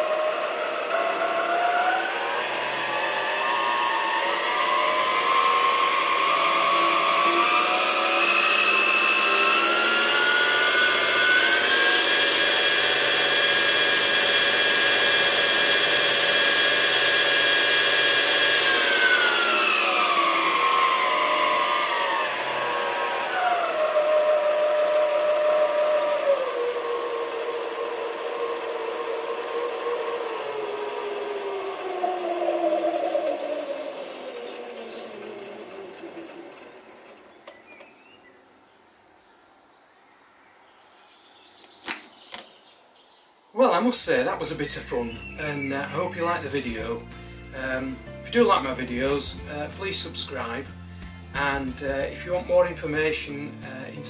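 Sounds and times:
lathe motor whining: 0.0 - 38.0.

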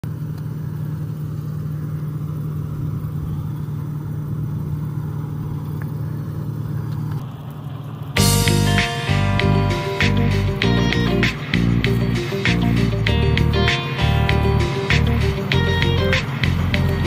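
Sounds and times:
combine harvester engine drone: 0.0 - 17.0
guitar music: 8.2 - 17.0.

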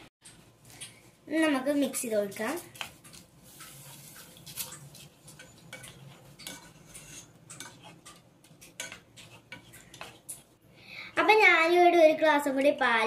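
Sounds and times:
plastic spoon scraping a pan: 2.8 - 10.5.

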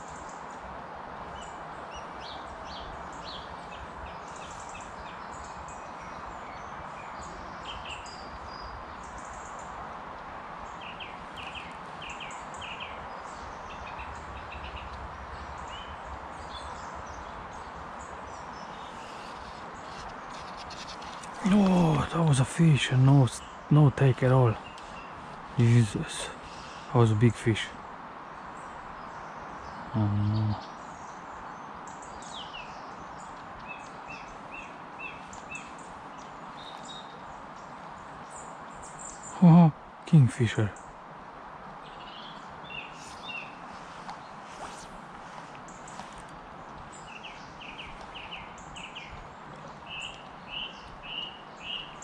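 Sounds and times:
steady outdoor hiss: 0.0 - 52.0
small birds chirping: 1.3 - 41.0, 41.8 - 52.0
background rush: 9.8 - 27.9.

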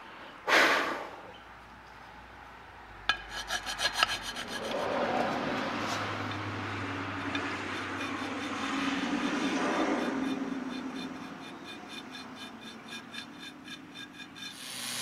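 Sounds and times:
file scraping on metal: 3.1 - 15.0.

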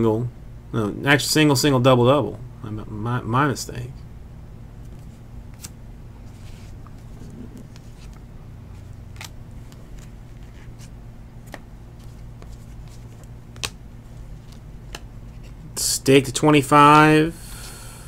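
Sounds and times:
low hum: 0.0 - 18.0
trading cards clicking and snapping: 9.1 - 10.2, 11.4 - 13.8, 14.4 - 15.6.

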